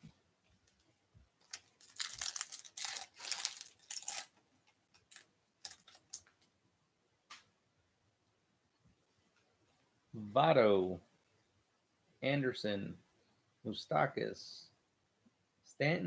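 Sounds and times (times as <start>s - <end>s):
foil wrapper tearing and crinkling: 1.4s - 4.3s, 5.0s - 6.2s.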